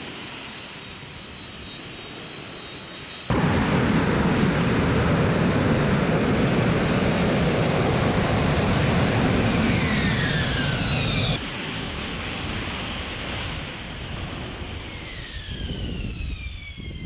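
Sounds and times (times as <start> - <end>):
jet engine running loud: 0.0 - 17.0
engine spooling down whine: 0.4 - 11.4, 14.5 - 17.0.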